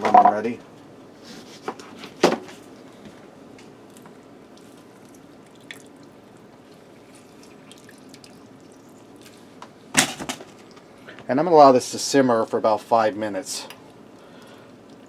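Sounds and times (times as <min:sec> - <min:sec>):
lemon juice dripping: 0:05.0 - 0:09.3.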